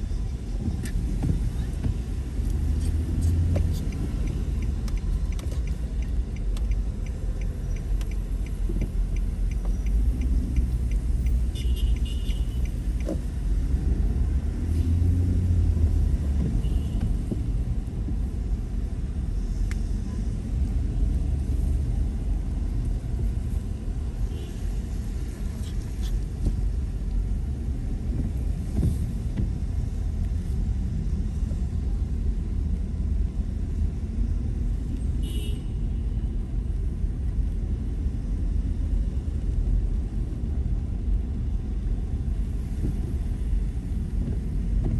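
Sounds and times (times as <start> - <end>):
car engine and tyres on wet road: 0.0 - 44.9
light ticking: 3.2 - 13.5.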